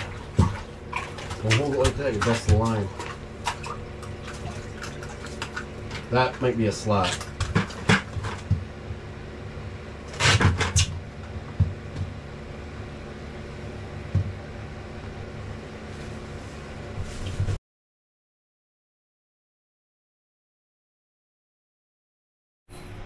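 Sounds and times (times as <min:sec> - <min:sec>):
handling knocks and clatter: 0:00.0 - 0:09.0
low mechanical hum: 0:00.0 - 0:17.6, 0:22.7 - 0:23.0.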